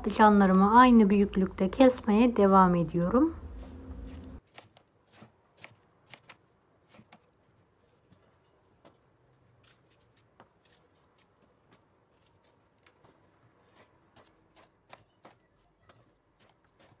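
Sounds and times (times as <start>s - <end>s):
knife slicing on wooden board: 3.4s - 7.4s.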